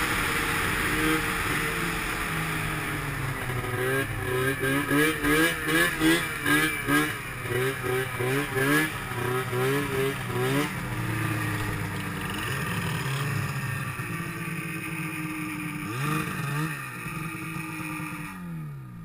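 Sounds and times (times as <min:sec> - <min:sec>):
engine throttle blips: 0:00.0 - 0:19.0
snowmobile engines idling: 0:00.0 - 0:19.0.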